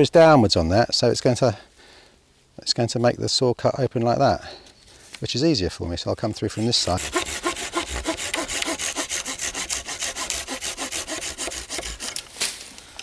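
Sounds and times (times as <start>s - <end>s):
hand saw cutting branch: 6.5s - 12.7s.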